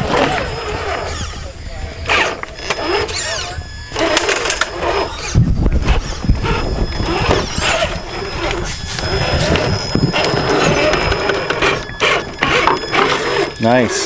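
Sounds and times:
toy truck motor whining: 0.0 - 14.0
low rumble: 3.4 - 13.6.

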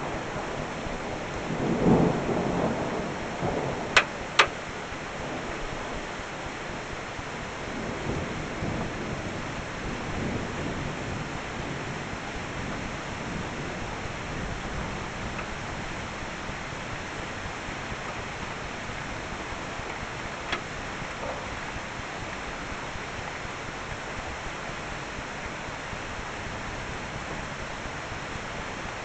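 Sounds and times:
steady rain falling: 0.0 - 29.0
thunder rumble: 0.0 - 29.0.

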